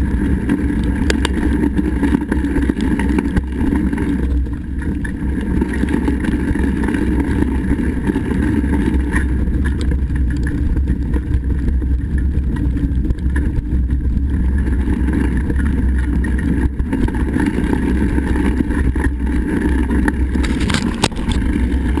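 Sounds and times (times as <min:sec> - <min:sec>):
bike tyre noise on dirt: 0:00.0 - 0:22.0
wind buffeting microphone: 0:00.0 - 0:22.0
bike knocks and rattles: 0:08.2 - 0:22.0.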